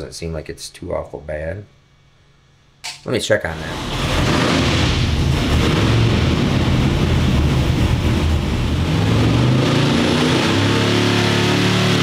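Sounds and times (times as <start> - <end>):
engine running loud on dyno: 3.5 - 12.0.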